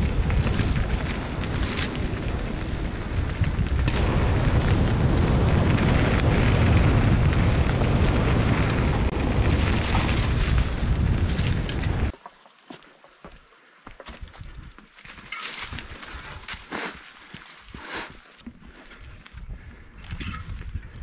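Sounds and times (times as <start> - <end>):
bike tyre rumble and rattling: 0.0 - 12.2, 14.0 - 21.0
wind buffeting microphone: 0.0 - 12.2, 19.0 - 21.0.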